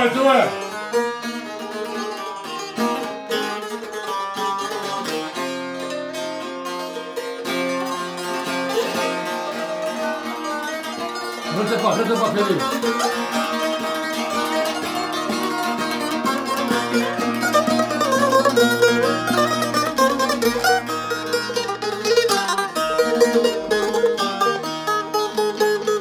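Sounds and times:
lutes plucked rapidly: 0:00.0 - 0:26.0.

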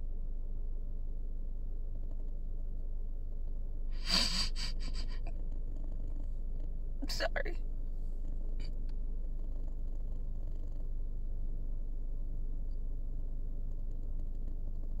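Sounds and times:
low car interior hum: 0:00.0 - 0:15.0
woman sobbing and sniffing: 0:04.0 - 0:05.3.

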